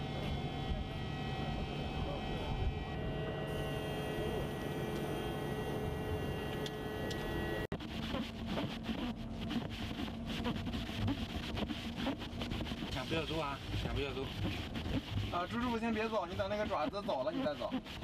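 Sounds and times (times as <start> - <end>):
machine hum with held tones: 0.0 - 12.9.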